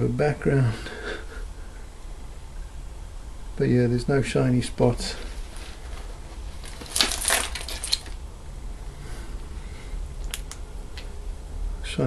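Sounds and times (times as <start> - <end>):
faint low hum: 0.0 - 12.0
small hard objects clattering: 5.6 - 8.2.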